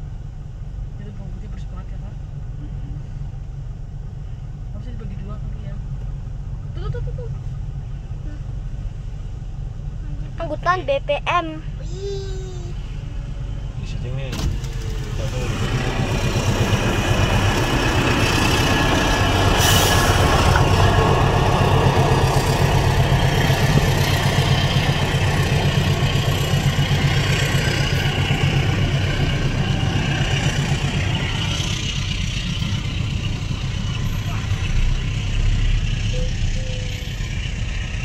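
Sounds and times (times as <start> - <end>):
freight train rumbling past: 12.8 - 38.0.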